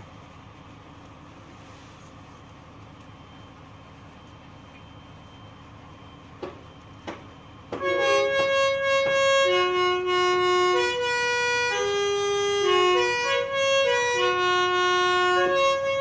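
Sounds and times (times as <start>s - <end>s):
reedy melody of held notes: 7.8s - 16.0s.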